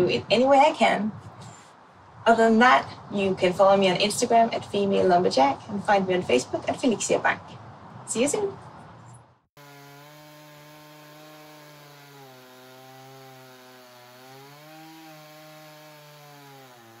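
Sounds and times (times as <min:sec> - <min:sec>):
chainsaw cutting through log: 0:09.6 - 0:17.0.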